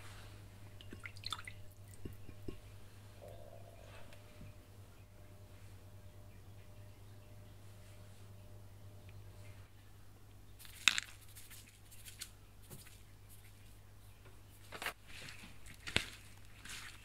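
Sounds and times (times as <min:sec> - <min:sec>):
hands rubbing wet fish: 0:10.6 - 0:13.8.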